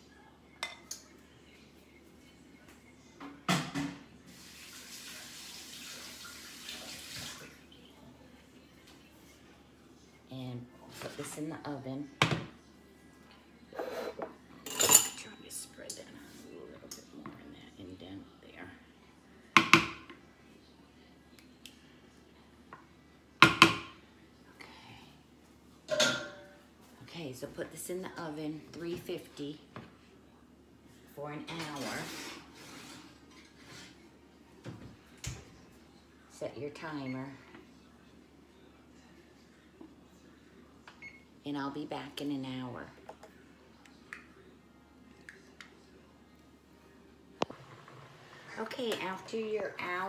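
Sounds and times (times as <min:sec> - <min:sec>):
kitchen tap running into sink: 0:04.3 - 0:07.6.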